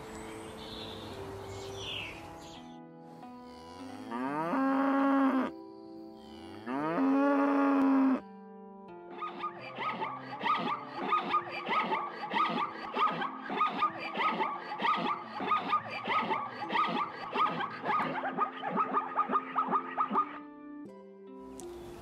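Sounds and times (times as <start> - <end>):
background music: 0.0 - 22.0
zebras barking yelps: 9.2 - 20.4.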